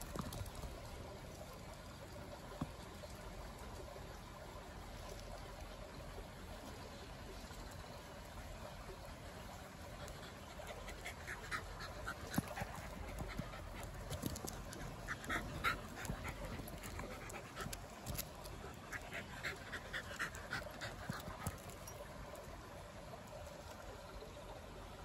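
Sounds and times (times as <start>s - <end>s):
dog panting: 9.8s - 21.9s.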